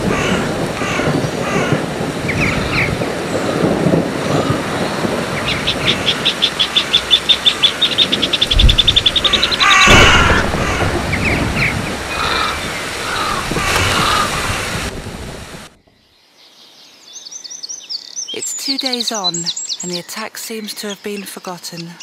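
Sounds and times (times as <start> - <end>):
crow cawing: 0.0 - 1.9, 4.2 - 4.8, 8.7 - 14.8
rapid high bird calls: 4.3 - 14.7
bird chirps: 16.0 - 22.0.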